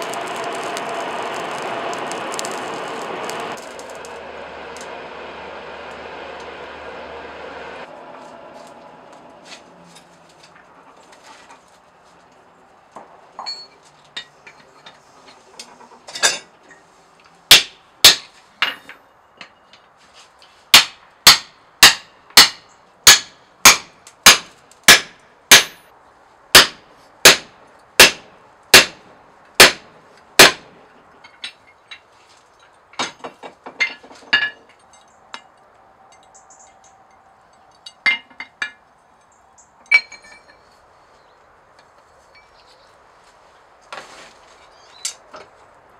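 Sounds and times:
light taps and clinks of tools: 0:12.2 - 0:17.4, 0:31.2 - 0:40.8.

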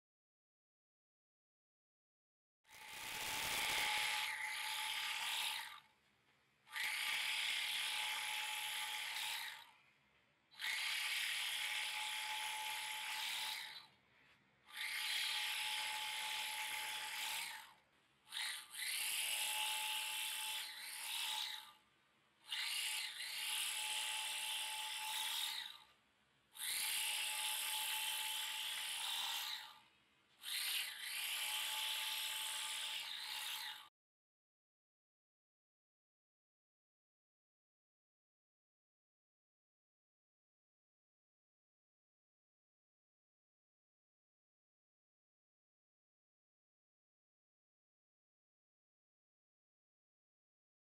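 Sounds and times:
bag sewing machine running: 0:02.7 - 0:05.8.

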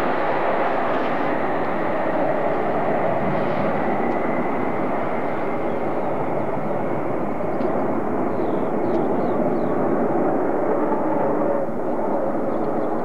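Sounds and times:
jet engines droning: 0:00.0 - 0:13.0.

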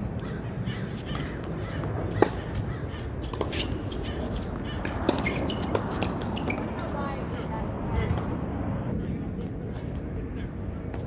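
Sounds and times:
tennis balls struck by rackets: 0:01.0 - 0:06.8.

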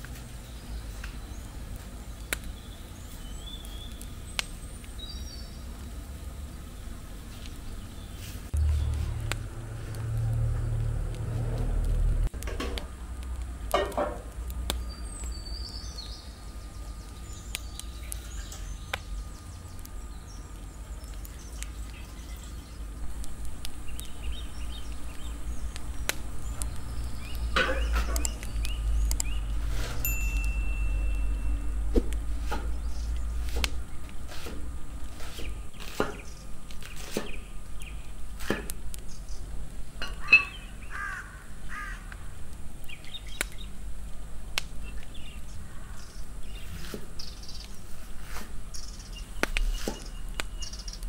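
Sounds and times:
steady low rumble: 0:00.7 - 0:36.7.

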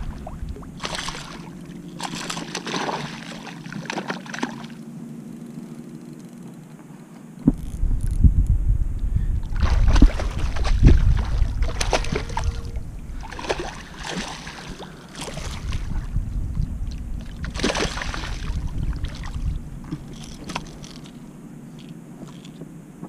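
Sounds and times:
low rumble: 0:00.0 - 0:01.8, 0:07.4 - 0:21.8
fish splashing at surface: 0:13.2 - 0:15.7.

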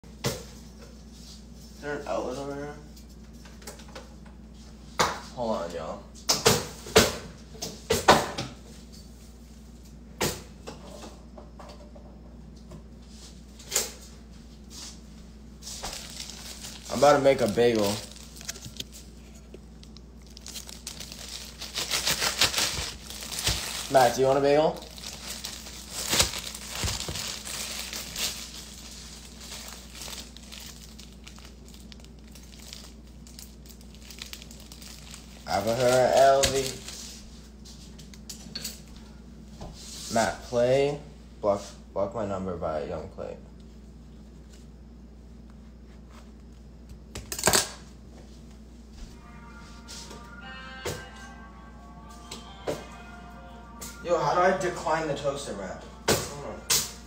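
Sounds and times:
plastic bag crinkling: 0:15.7 - 0:37.1.

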